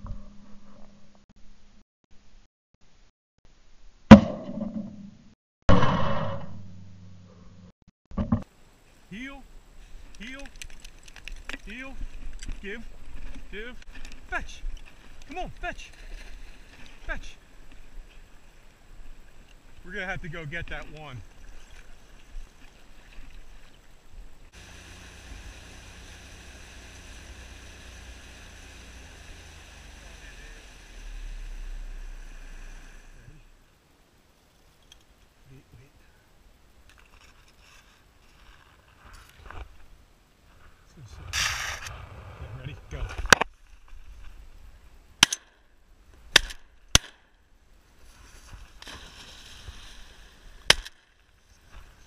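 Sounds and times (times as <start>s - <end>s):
water splashing and lapping: 21.2s - 33.1s, 48.0s - 52.0s
dry reeds rustling: 24.4s - 33.2s, 47.9s - 52.0s
water rushing past hull: 24.5s - 33.2s
outboard motor running: 24.5s - 33.3s
sharp short cracks: 46.3s - 47.4s, 50.7s - 51.2s.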